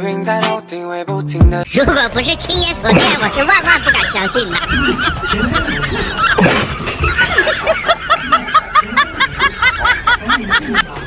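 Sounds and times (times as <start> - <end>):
high-pitched sped-up giggling: 2.9 - 11.0.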